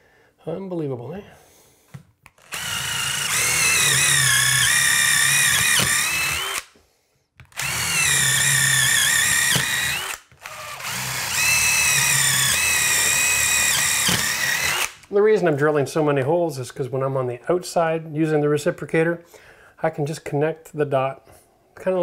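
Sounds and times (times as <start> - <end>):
cordless drill boring through wood: 2.3 - 6.7, 7.4 - 15.1.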